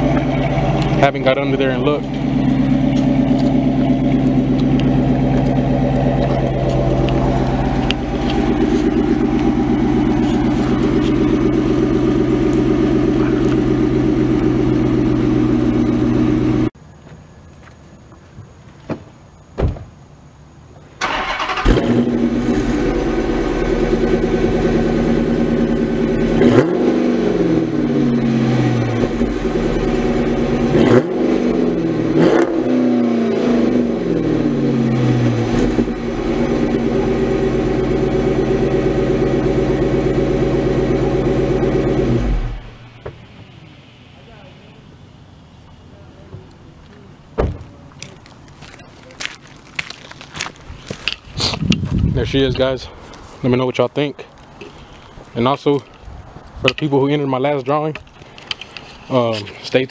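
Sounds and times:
engine revving: 0.0s - 16.7s, 21.0s - 43.5s
car engine idling: 0.0s - 16.8s, 21.0s - 50.2s.

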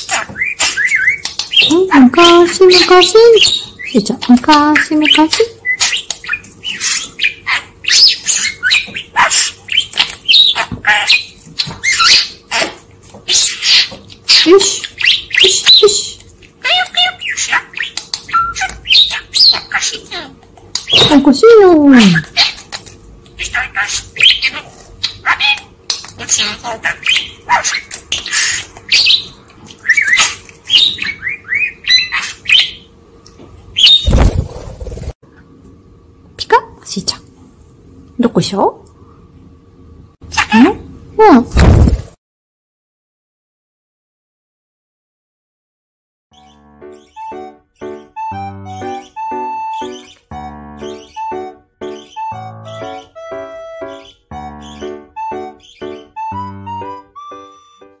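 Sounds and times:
budgerigar chattering: 0.0s - 21.1s, 23.4s - 32.9s, 46.4s - 50.2s, 50.8s - 57.0s.

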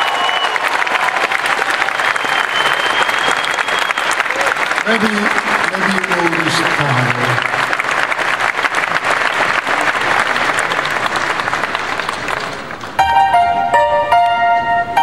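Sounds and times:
large audience applauding: 0.0s - 13.1s
live band held notes: 12.6s - 15.0s.

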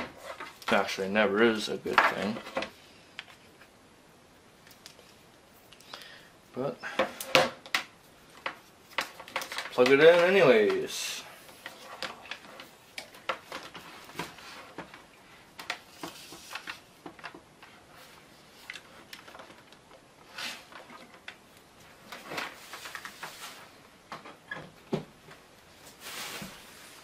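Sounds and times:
cable rustling: 7.0s - 27.0s.

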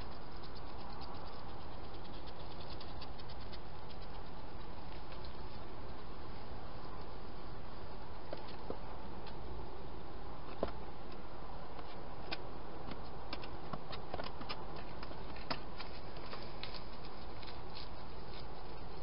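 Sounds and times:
hedgehogs clicking and crunching: 0.0s - 6.1s, 12.2s - 19.0s.

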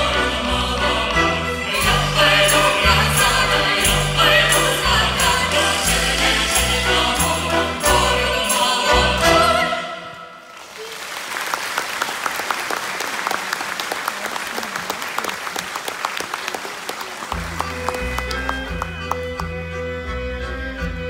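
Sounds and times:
choir singing folk song: 0.0s - 10.4s
audience applauding: 10.5s - 19.5s.

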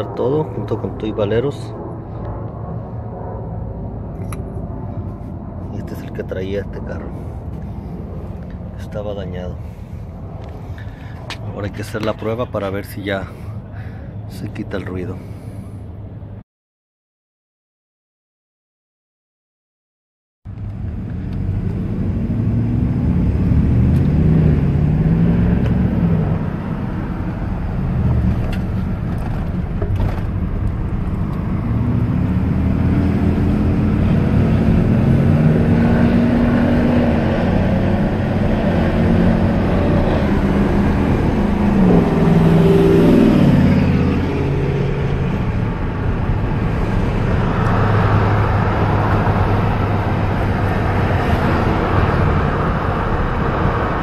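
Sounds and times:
road noise: 0.0s - 16.4s, 20.5s - 54.0s
truck engine accelerating: 20.5s - 54.0s.

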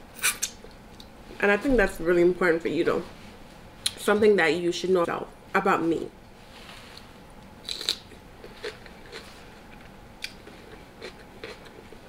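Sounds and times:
person eating crisp bites: 7.6s - 9.5s, 10.2s - 12.0s.

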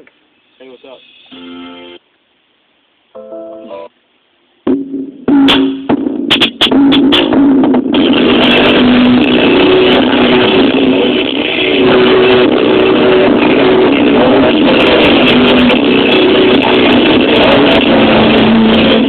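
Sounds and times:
loud bass-heavy music: 4.7s - 19.0s
sharp clicks and stutters: 5.5s - 19.0s.

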